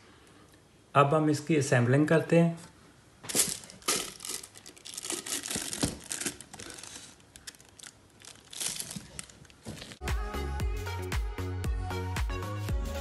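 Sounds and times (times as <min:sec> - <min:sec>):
crinkly material rustling: 0:03.2 - 0:10.0.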